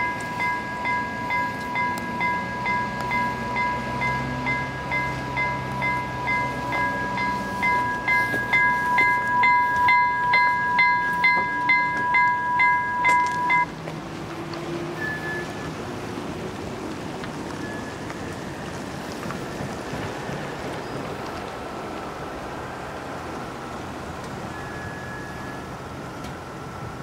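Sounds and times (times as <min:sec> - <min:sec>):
level crossing bell ringing: 0:00.0 - 0:13.7.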